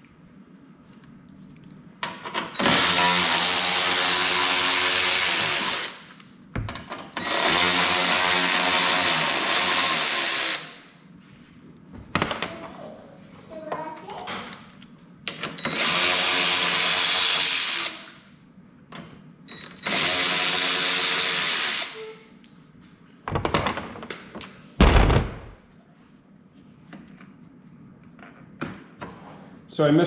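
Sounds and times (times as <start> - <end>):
power drill spinning: 2.5 - 6.1, 7.2 - 10.8, 15.6 - 18.2, 19.6 - 22.0
heavy thud: 24.8 - 25.6.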